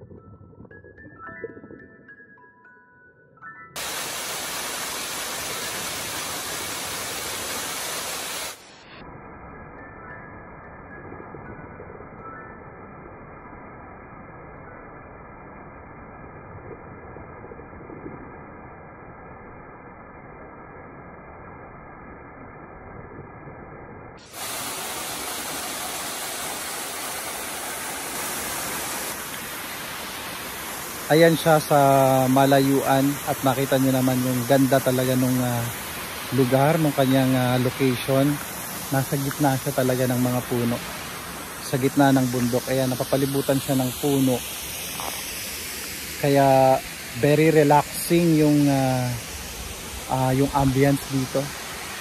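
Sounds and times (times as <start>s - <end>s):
waterfall rushing over rocks: 3.8s - 9.1s, 24.2s - 52.0s.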